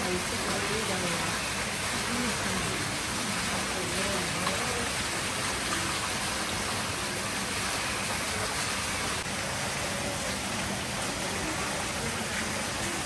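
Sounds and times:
running water rushing: 0:00.0 - 0:13.0.

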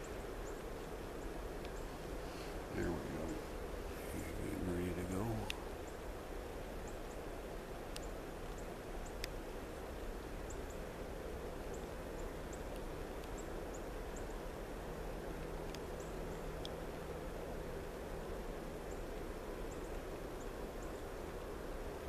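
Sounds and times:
small birds chirping: 0:00.0 - 0:21.6
faint steady hum: 0:00.0 - 0:22.0
distant engines rumbling: 0:01.7 - 0:05.9.

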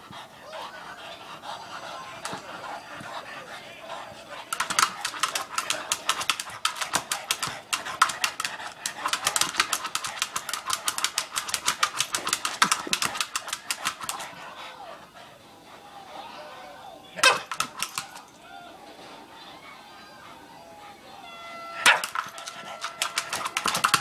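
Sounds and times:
dog claws clicking on plastic ball: 0:04.4 - 0:14.4, 0:17.2 - 0:18.2, 0:21.8 - 0:24.0.

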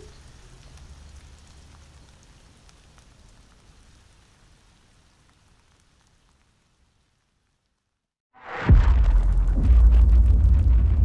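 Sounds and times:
rain falling: 0:00.0 - 0:08.1
low rumble: 0:08.4 - 0:11.0.

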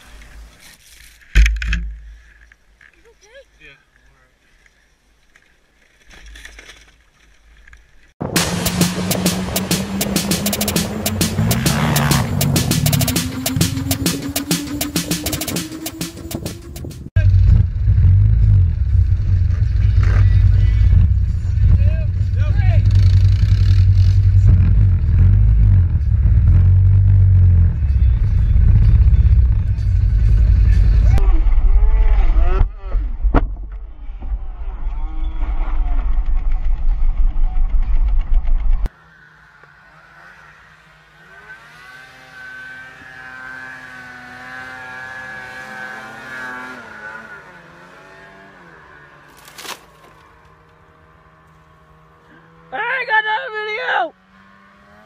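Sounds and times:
atv engine revving hard: 0:08.4 - 0:14.4, 0:21.8 - 0:29.8, 0:38.9 - 0:49.4, 0:50.0 - 0:53.0, 0:54.1 - 0:55.0.

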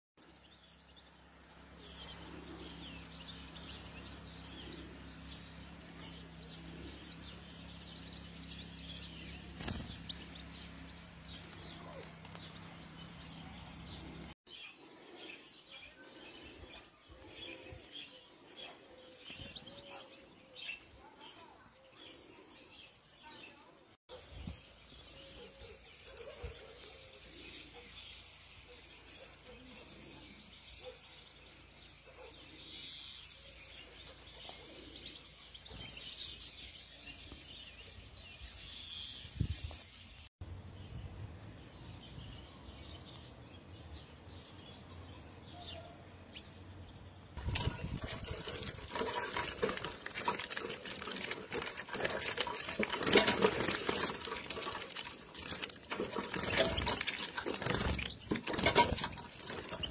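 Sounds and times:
birds fluttering in wire cage: 0:01.8 - 0:14.4, 0:15.2 - 0:22.8, 0:47.4 - 0:59.9.

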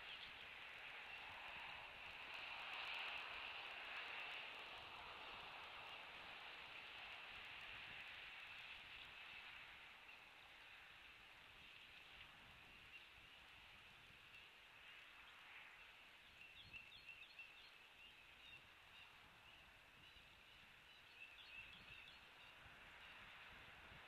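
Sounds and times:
bird chirps: 0:16.2 - 0:23.2.

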